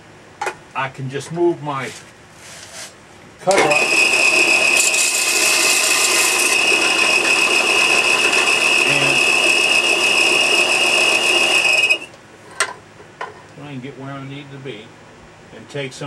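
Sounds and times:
belt sander grinding steel: 3.6 - 12.1.

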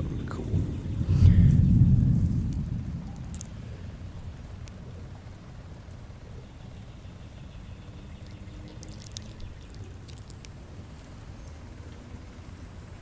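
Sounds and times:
steady low rumble: 0.0 - 13.0
water trickling and dripping: 8.2 - 10.6.

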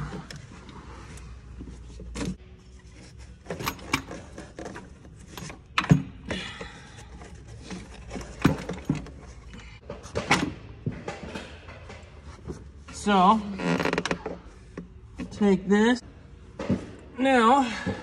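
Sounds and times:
engine parts clicking and clinking: 3.3 - 12.2.

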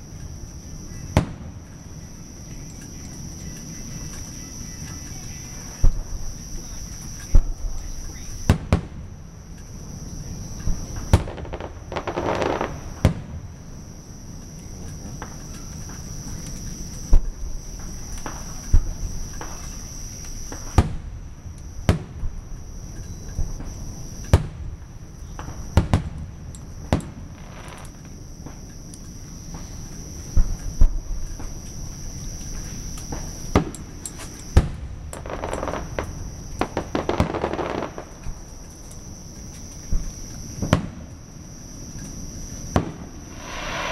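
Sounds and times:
fireworks bursting: 11.0 - 13.3, 43.1 - 43.9.

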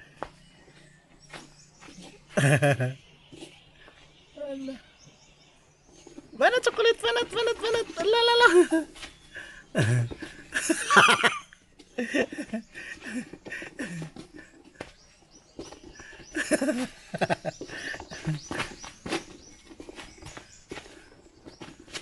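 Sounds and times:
coconut scuffing on dirt: 11.8 - 22.0.

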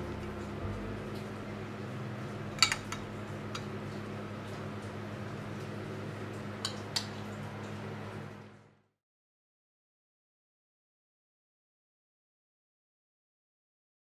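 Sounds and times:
steady low hum: 0.0 - 6.7.

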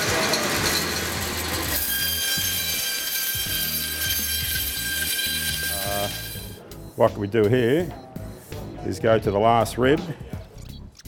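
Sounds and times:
band saw cutting through bone: 1.7 - 6.6.

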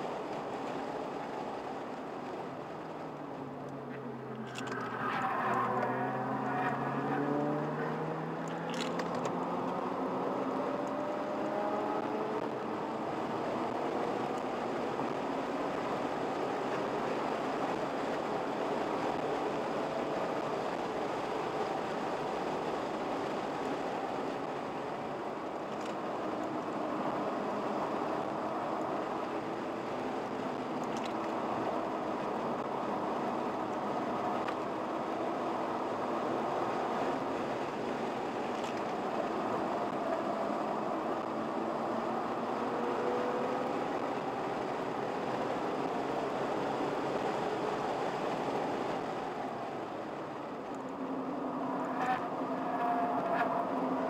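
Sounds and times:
wind and road noise: 0.0 - 54.0
car engine accelerating: 3.7 - 21.6, 25.8 - 49.2.

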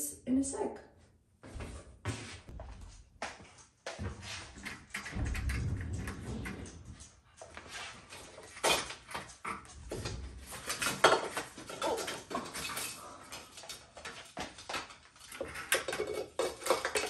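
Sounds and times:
dishes clinking and clattering: 8.3 - 17.0.

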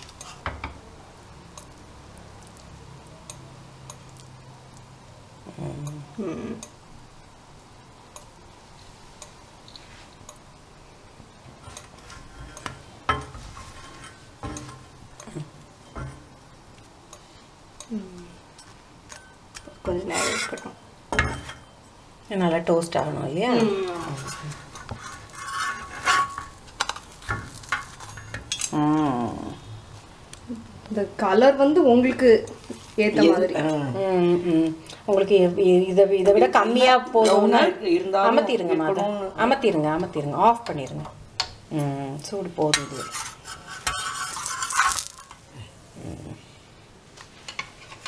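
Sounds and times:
spatula scraping griddle pan: 11.6 - 14.9, 20.0 - 21.7, 24.0 - 28.6, 42.7 - 45.4
person speaking: 33.0 - 35.3.

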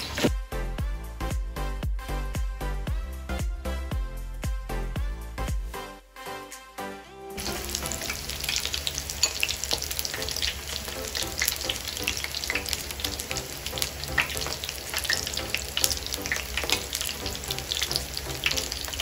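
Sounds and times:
oil frying and sizzling: 7.4 - 19.0.

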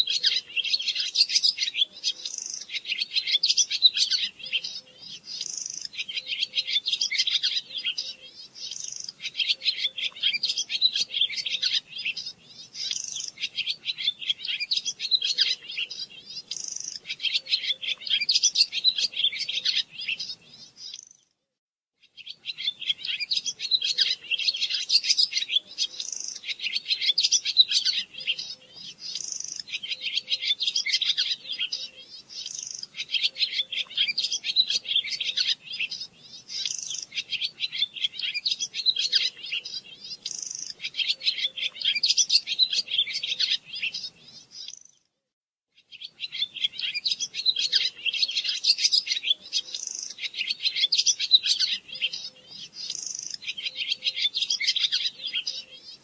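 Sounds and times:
songbird twittering chirps: 0.0 - 21.4, 22.0 - 45.1, 45.7 - 56.0.

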